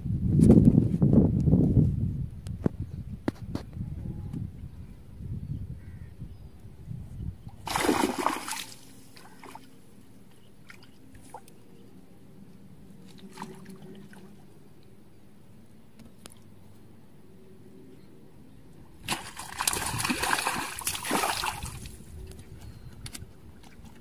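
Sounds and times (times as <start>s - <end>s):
fish splashing in water: 7.6s - 9.7s, 19.0s - 21.9s.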